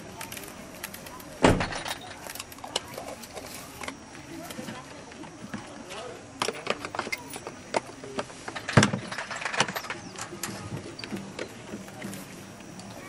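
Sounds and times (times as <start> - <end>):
gear clattering in plastic toolbox: 6.4 - 11.5.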